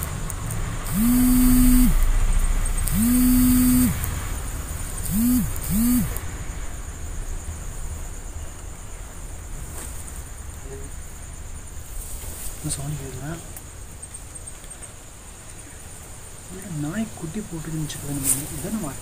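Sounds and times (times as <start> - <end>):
low pulsing hum: 0.0 - 6.3
faint rattly hiss: 0.0 - 19.0.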